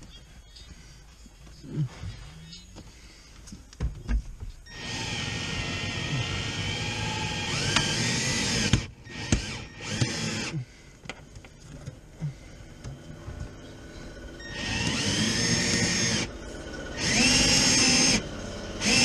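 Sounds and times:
cordless drill running: 0:04.7 - 0:10.8, 0:14.1 - 0:19.0.

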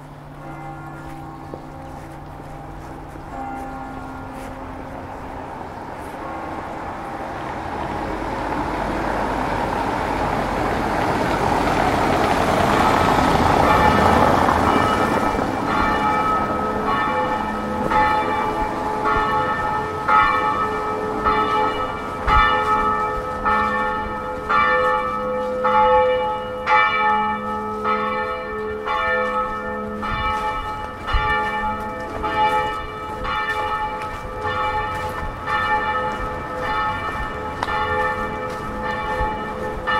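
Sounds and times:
church bells ringing: 0:00.0 - 0:39.9
vehicle passing: 0:00.2 - 0:25.2.

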